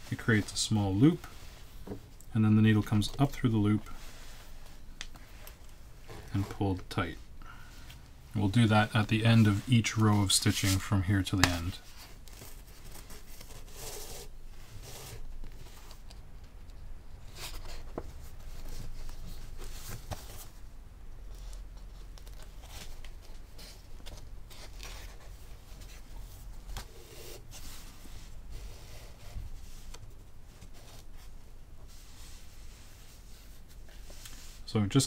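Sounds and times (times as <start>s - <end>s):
paper rustling: 9.2s - 16.2s.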